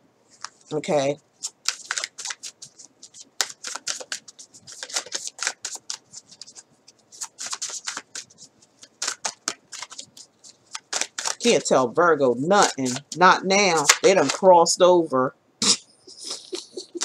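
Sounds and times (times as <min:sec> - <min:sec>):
cards being shuffled: 0:00.3 - 0:00.8, 0:01.4 - 0:14.5.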